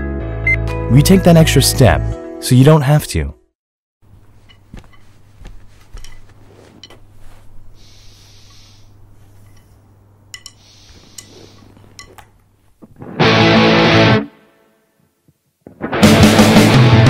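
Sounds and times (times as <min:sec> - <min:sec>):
objects clicking and tapping: 0:04.4 - 0:07.1, 0:09.4 - 0:12.4
short hissing swishes: 0:06.4 - 0:09.8, 0:10.6 - 0:11.8.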